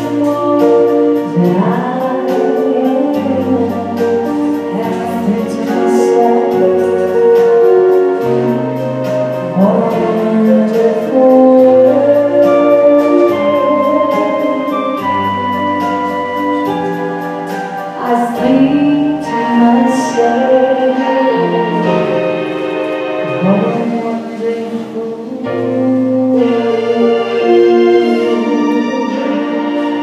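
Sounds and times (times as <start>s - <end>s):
woman singing: 0.0s - 8.5s, 9.4s - 15.6s, 17.9s - 22.4s, 23.2s - 30.0s
bass line: 0.0s - 30.0s.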